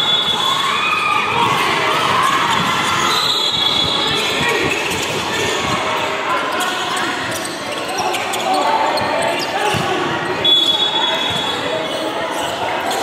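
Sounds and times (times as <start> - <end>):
basketball bouncing on court: 9.0 - 10.1.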